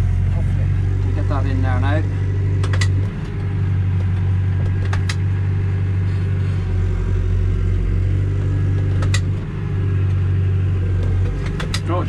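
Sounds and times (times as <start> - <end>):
tractor engine running: 0.0 - 12.0
sharp clicks: 2.6 - 5.3, 8.4 - 9.4, 11.0 - 11.9.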